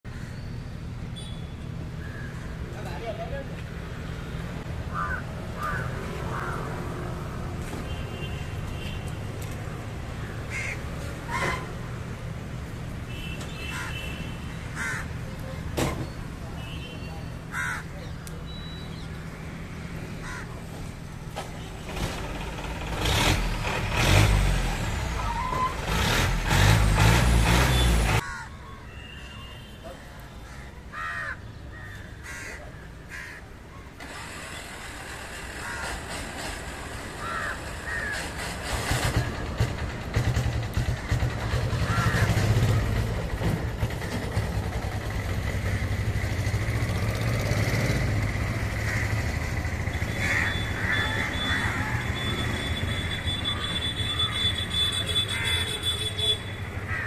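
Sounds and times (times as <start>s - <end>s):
crows cawing: 2.0s - 2.6s, 4.9s - 7.0s, 10.2s - 11.7s, 13.7s - 14.0s, 14.6s - 15.2s, 17.5s - 18.0s, 20.2s - 20.6s, 28.2s - 28.6s, 30.4s - 33.5s, 35.6s - 36.0s, 37.2s - 38.4s, 41.8s - 42.4s, 48.6s - 52.4s, 55.2s - 55.8s, 56.8s - 57.0s.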